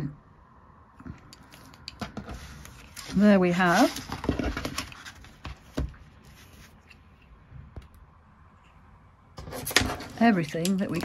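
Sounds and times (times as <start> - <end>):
paper rustling: 2.1 - 7.0.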